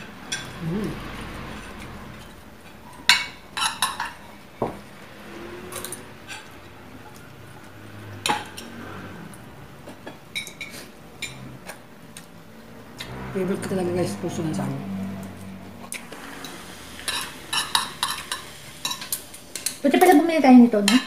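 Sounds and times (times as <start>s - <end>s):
cutlery clinking against plates: 2.9s - 4.8s, 9.8s - 12.2s, 16.4s - 20.2s.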